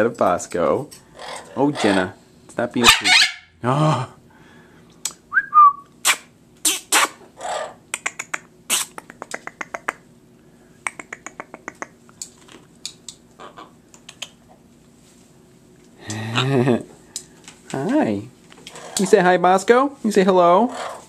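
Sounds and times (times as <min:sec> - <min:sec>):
faint steady hum: 0:00.0 - 0:21.0
macaw squeak: 0:02.8 - 0:03.4
harsh bird calls: 0:02.8 - 0:03.6, 0:18.7 - 0:19.3, 0:20.6 - 0:21.0
macaw clicking: 0:07.9 - 0:10.0, 0:10.9 - 0:13.2.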